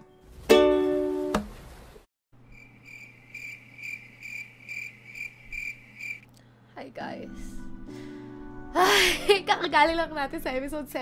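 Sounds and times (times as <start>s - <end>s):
insect chirping: 2.5s - 6.2s.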